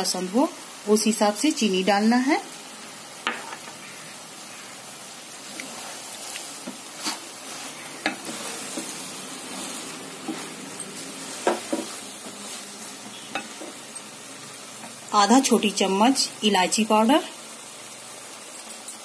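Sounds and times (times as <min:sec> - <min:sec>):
food sizzling in a pan: 0:00.0 - 0:19.0
spatula scraping pan: 0:05.5 - 0:13.8.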